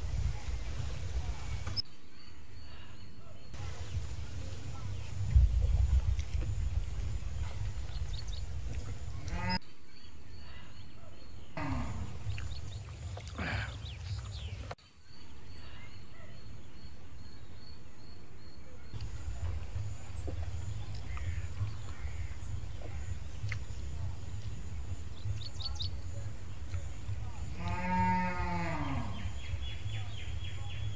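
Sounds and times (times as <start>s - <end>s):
wind rumbling on microphone: 0.0s - 1.8s, 3.6s - 9.6s, 11.8s - 13.3s.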